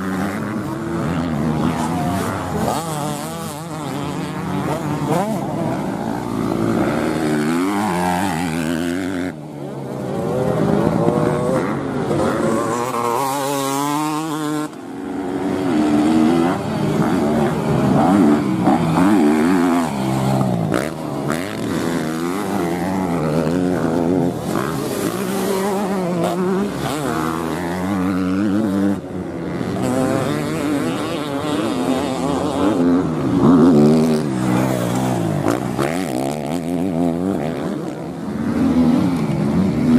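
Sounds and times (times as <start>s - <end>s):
dirt bike engines revving: 0.0s - 39.9s.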